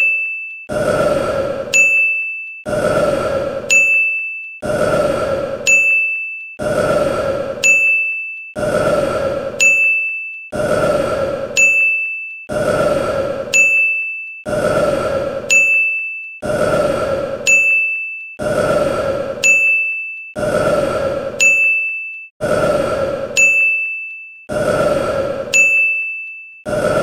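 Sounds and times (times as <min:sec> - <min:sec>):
bright ding: 0:21.4 - 0:22.1, 0:23.4 - 0:24.0.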